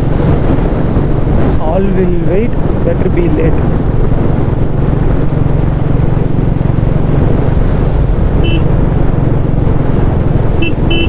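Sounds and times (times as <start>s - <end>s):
road and wind noise: 0.0s - 11.0s
motorcycle engine running: 2.6s - 11.0s
horn beep: 8.4s - 8.7s, 10.6s - 11.0s.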